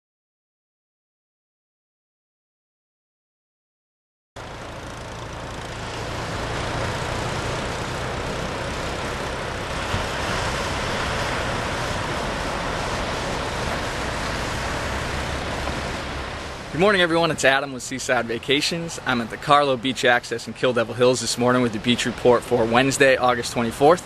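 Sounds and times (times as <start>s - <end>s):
low rumble: 4.4s - 19.4s
ocean waves breaking on beach: 4.4s - 24.0s.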